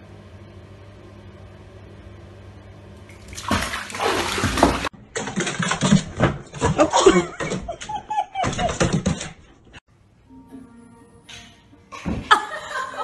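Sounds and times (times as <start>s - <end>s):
water splashing in bathtub: 3.0s - 7.4s.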